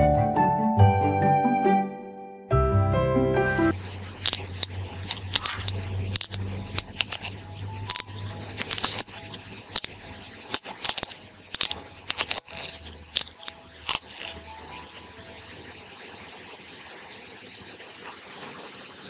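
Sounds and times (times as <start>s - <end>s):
plastic blister pack popping: 4.2s - 15.2s.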